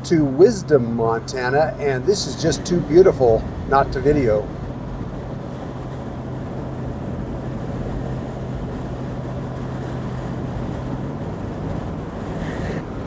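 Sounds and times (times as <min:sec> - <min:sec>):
low engine hum: 0:00.0 - 0:13.0
road noise: 0:00.0 - 0:13.0.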